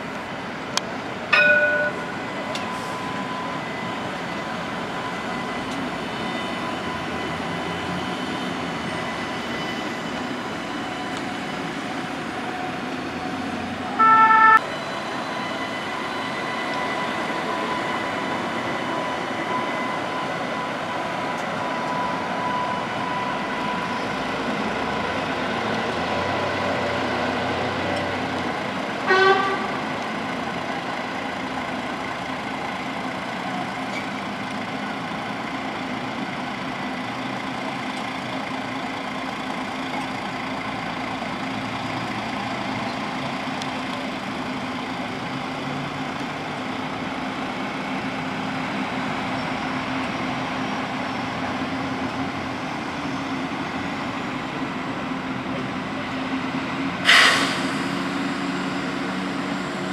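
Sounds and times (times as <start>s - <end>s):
street traffic: 0.0s - 59.9s
tram hum: 0.0s - 59.9s
tram warning horn blasts: 13.9s - 16.8s, 29.0s - 29.9s.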